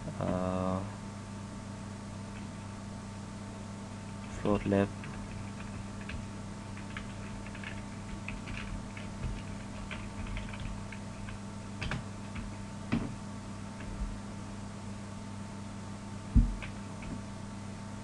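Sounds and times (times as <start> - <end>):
steady low hum: 0.0 - 18.0
keyboard typing clicks: 6.8 - 13.0.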